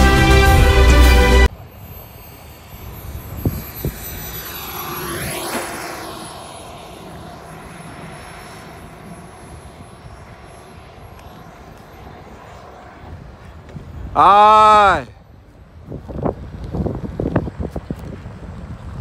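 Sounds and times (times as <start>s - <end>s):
model jet motor whine: 1.5s - 14.9s.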